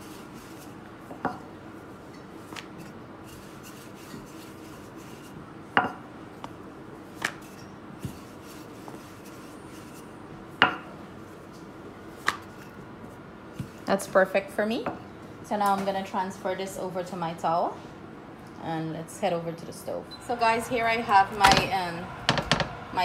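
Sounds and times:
rolling pin rubbing dough: 0.0 - 1.2, 2.4 - 5.5, 7.0 - 10.2.

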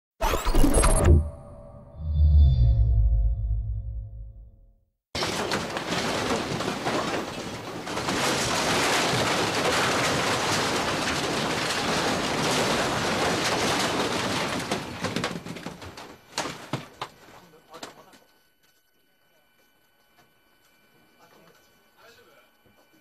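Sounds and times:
office furniture rattling and clattering: 5.2 - 17.4.

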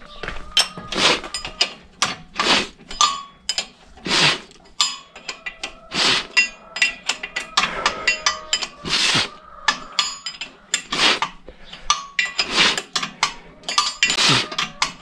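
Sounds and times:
tool scraping metal: 0.6 - 15.0
metallic clinks with ringing: 4.7 - 5.8, 6.4 - 8.8, 9.7 - 10.7, 13.0 - 15.0.

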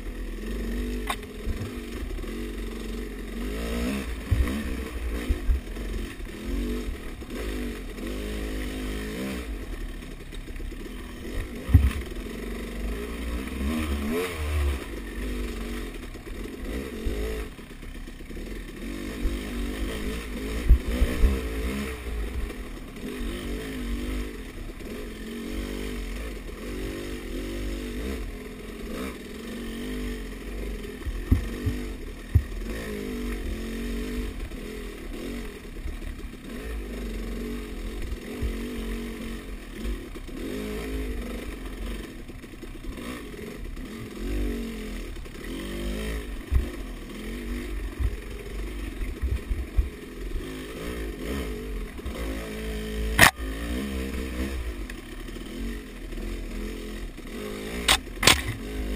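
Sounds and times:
dirt bike engine revving: 0.0 - 58.9
sharp thumps: 53.2 - 53.5, 57.8 - 58.8.

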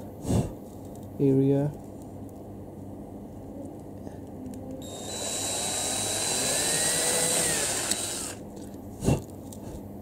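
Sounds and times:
electric drill whining: 4.8 - 8.4.

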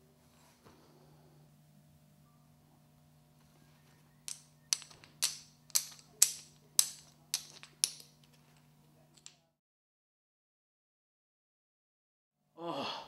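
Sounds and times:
faint steady hum: 0.0 - 9.6
sharp clacks of hard objects: 4.3 - 8.4.

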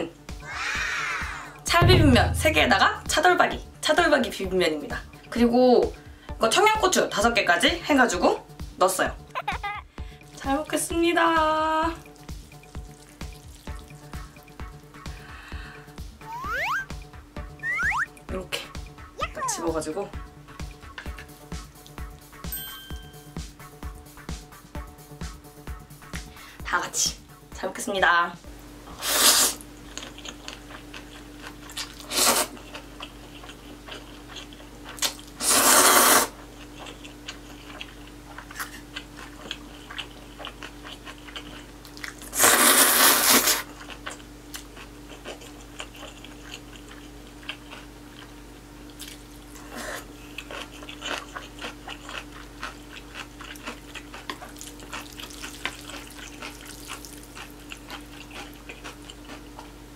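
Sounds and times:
wet chewing: 12.0 - 15.0, 29.8 - 59.8
loud slurps of noodles: 29.0 - 29.6, 32.0 - 32.5, 35.4 - 36.4, 42.3 - 43.6.

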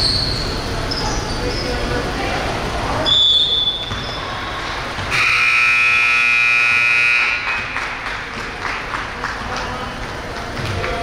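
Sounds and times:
scoreboard buzzer: 5.1 - 7.7.

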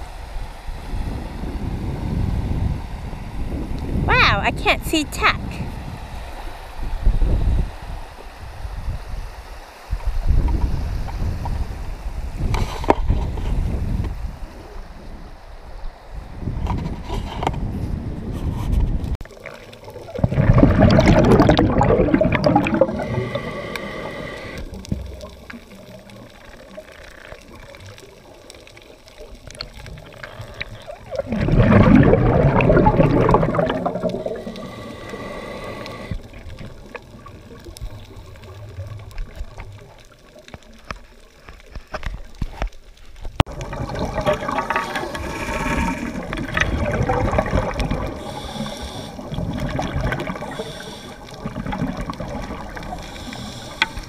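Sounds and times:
exhaled bubbles rushing: 19.2 - 40.6, 43.5 - 54.0
hissing regulator inhale: 22.8 - 24.8, 34.2 - 36.3, 48.0 - 49.4, 50.4 - 51.4, 52.8 - 54.0.

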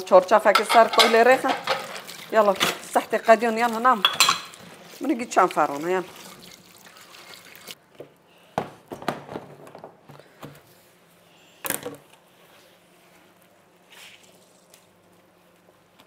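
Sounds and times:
kitchenware knocks and clinks: 0.5 - 1.9, 4.0 - 4.5.

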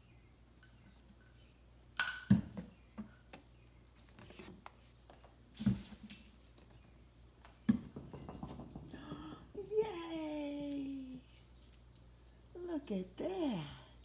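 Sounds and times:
knock on concrete floor: 7.7 - 9.5.

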